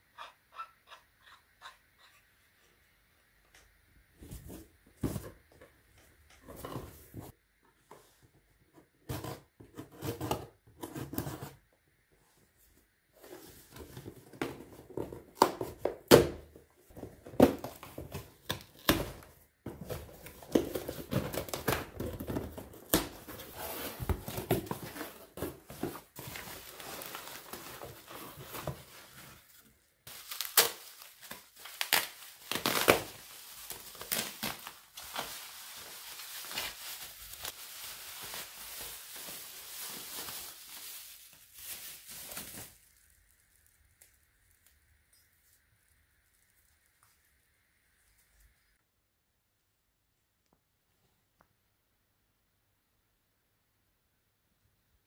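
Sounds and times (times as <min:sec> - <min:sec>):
rustling and crinkling handling: 0:12.2 - 0:47.4.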